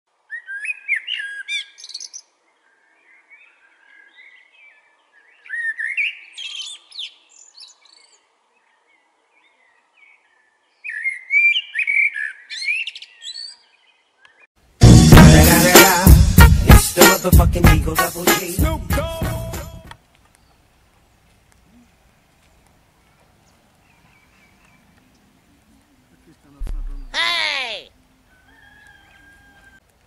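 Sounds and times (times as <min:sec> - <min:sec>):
blackbird singing: 0:00.3 - 0:08.2, 0:09.4 - 0:14.5, 0:26.6 - 0:27.6.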